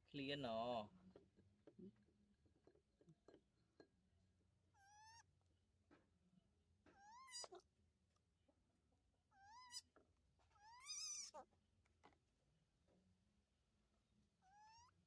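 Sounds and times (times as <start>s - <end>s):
baby monkey crying: 4.8s - 5.3s, 6.9s - 7.6s, 9.3s - 11.5s, 14.4s - 15.0s.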